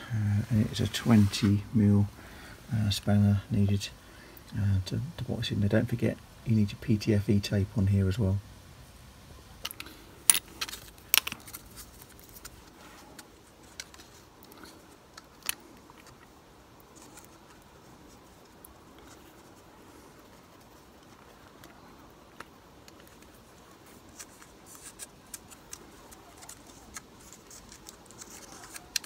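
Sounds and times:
small ticks and faint rustling: 10.6s - 29.0s.

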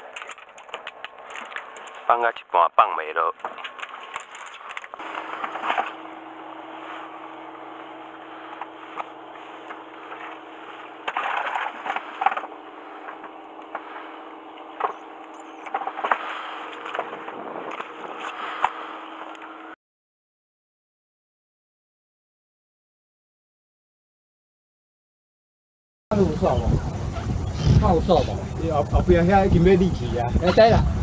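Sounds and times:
low hum from boat: 0.0s - 19.8s, 26.1s - 31.0s.

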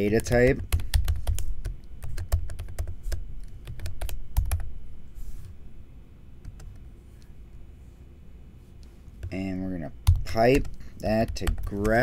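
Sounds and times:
keyboard typing: 0.0s - 4.7s, 10.0s - 12.0s.

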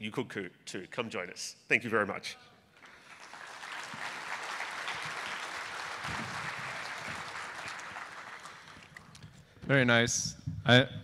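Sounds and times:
audience applause: 2.8s - 9.2s.

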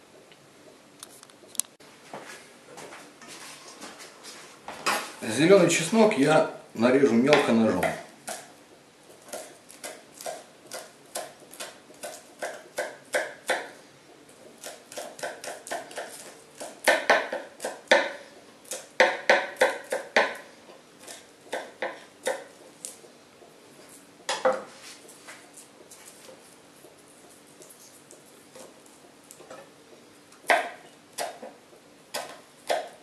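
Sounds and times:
knife chopping on cutting board: 9.1s - 13.8s, 14.4s - 23.0s, 30.4s - 33.0s.

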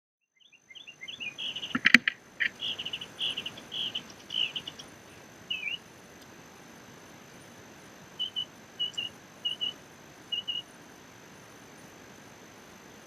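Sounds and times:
small songbirds chirping: 0.3s - 13.0s
slurred bird call: 0.6s - 5.9s, 8.2s - 10.7s
sharp knocks: 1.7s - 2.2s.

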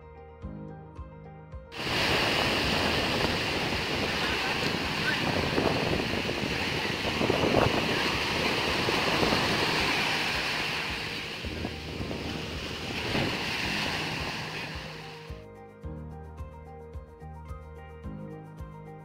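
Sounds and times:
sea surf breaking: 1.8s - 15.3s
wind rumbling on microphone: 1.8s - 15.3s.

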